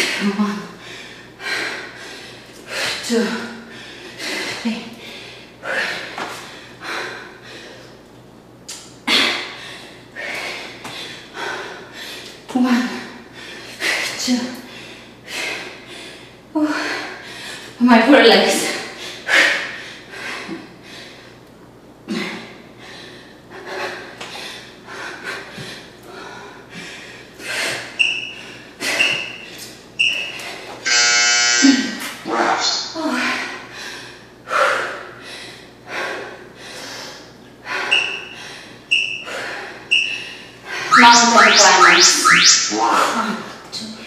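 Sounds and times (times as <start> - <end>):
woman breathing hard: 0.0 - 8.0, 9.1 - 12.3, 22.1 - 29.5, 33.2 - 40.9
short high timer beeps: 40.9 - 43.2.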